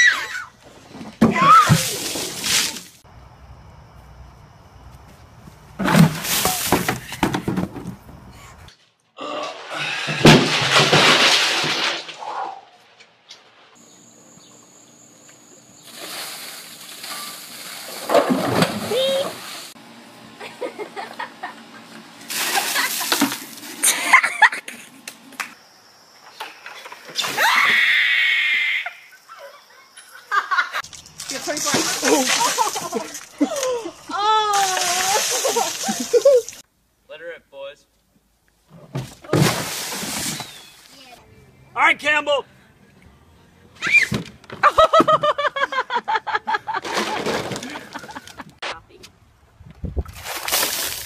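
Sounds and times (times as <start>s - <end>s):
water splashing: 1.6s - 3.0s, 30.8s - 36.6s
person screaming: 18.9s - 19.4s, 33.5s - 35.2s.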